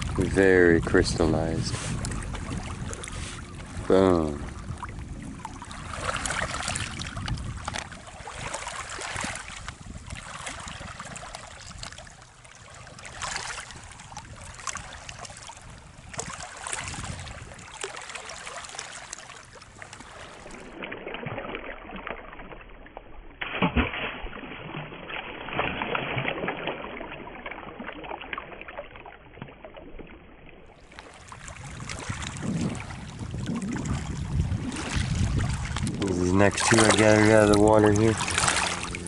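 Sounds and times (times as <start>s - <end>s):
small waves lapping on rocks: 0.0s - 39.0s
rock splashing into water: 20.4s - 30.2s.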